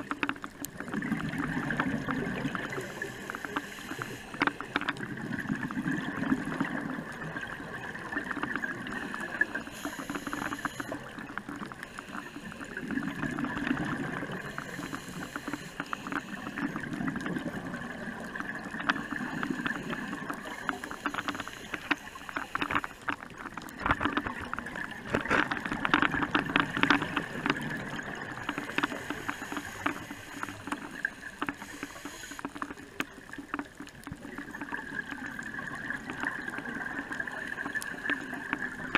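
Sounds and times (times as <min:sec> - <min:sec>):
bubbling and crackling bubbles: 0:00.0 - 0:38.9
diver breathing through regulator: 0:02.7 - 0:04.8, 0:08.9 - 0:11.1, 0:14.4 - 0:16.7, 0:19.0 - 0:23.1, 0:28.4 - 0:32.6.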